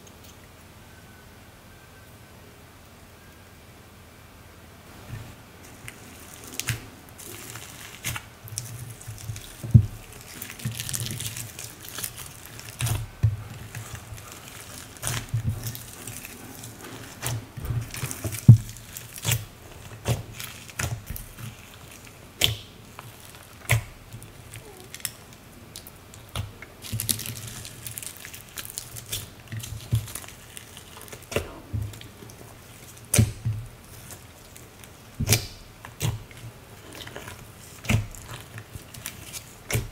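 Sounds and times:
slime squelching: 0:04.9 - 0:39.9.

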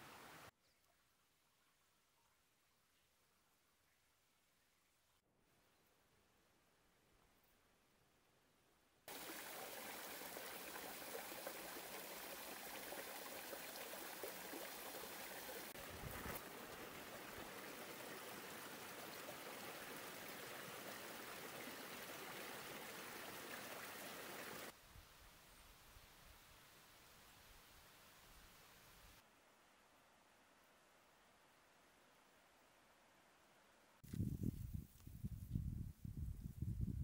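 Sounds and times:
stream running over rocks: 0:09.1 - 0:24.8.

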